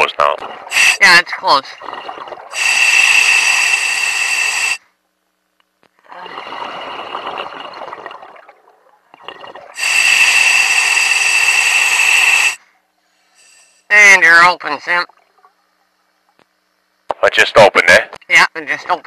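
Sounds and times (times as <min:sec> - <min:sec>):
loud electronic hiss with whine: 0:00.7 - 0:01.2.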